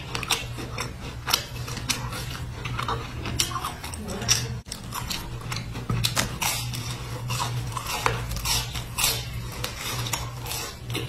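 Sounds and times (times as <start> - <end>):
biscuit crunching: 0.0 - 11.0
steady low hum: 0.0 - 11.0.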